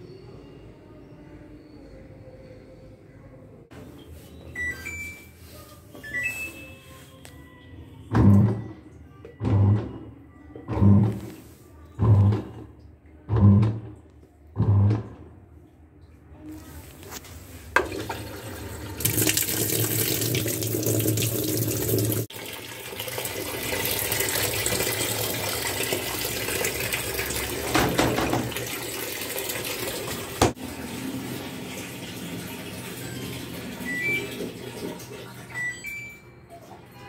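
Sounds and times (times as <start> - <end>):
short electronic beeps: 4.4 - 5.4, 6.0 - 7.0, 33.9 - 34.3
water rushing into washing machine: 17.7 - 35.8.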